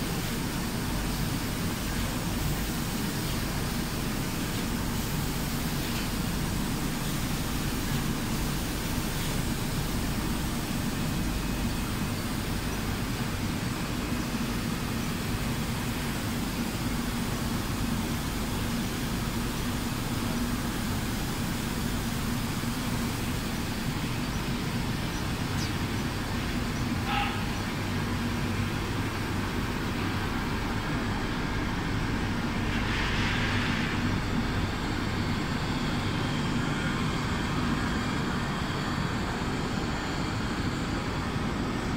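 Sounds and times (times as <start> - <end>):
conveyors running: 0.0 - 32.8, 33.5 - 41.9
extraction fans running: 0.0 - 41.9
factory line drone: 0.0 - 41.9
brief hiss: 32.7 - 34.2.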